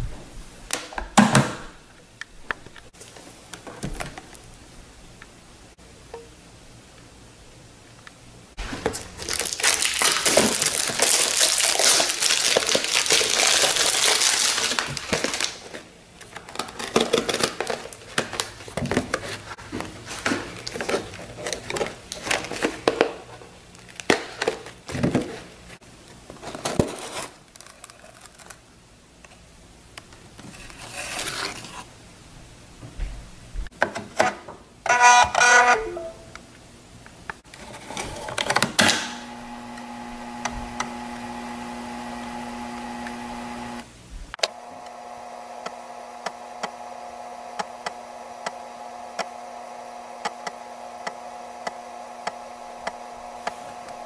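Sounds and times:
plastic wrap tearing and crinkling: 8.6 - 25.0, 26.3 - 28.7
buzzing whir with tones: 39.1 - 54.0.

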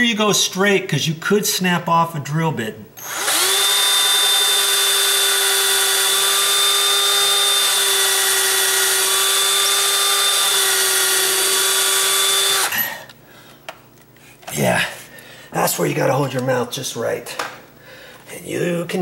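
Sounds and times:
cordless drill whining: 3.0 - 13.1.

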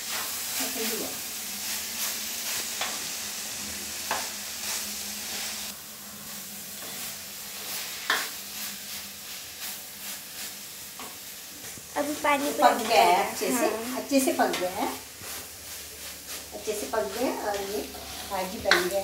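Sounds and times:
curry sizzling: 0.0 - 19.0
wooden spatula scraping pan: 14.4 - 19.0.

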